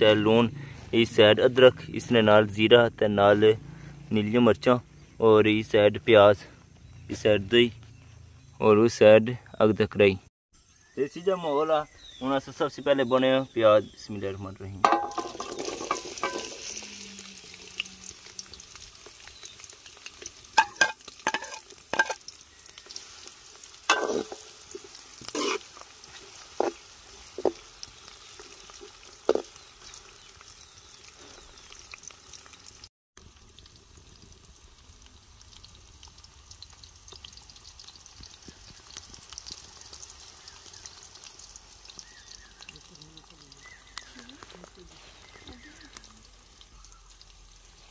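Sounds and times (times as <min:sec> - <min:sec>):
onions sizzling in hot oil: 0:14.8 - 0:47.9.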